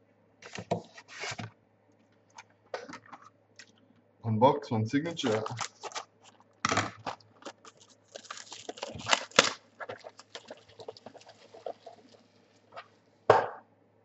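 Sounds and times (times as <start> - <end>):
foil wrappers crinkling and tearing: 5.1 - 13.0.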